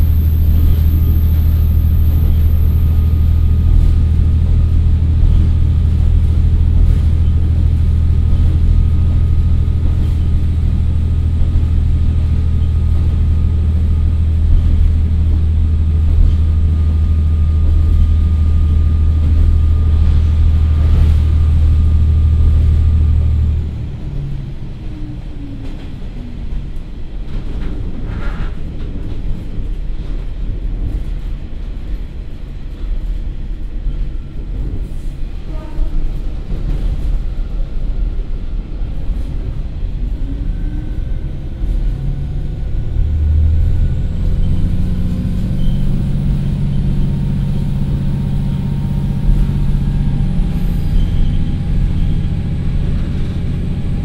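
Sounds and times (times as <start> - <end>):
diesel railcar engine running: 0.0 - 54.0
wheels rumbling on rail: 0.0 - 54.0.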